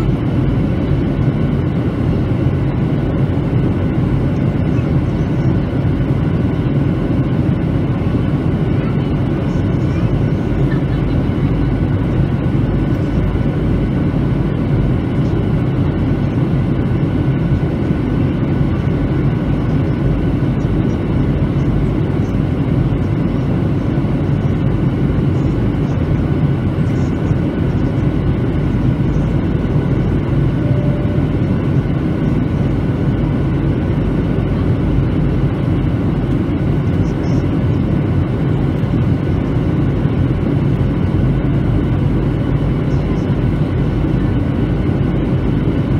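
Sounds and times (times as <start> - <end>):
airplane cabin engine roar: 0.0 - 45.9
faint steady tones: 30.5 - 31.4.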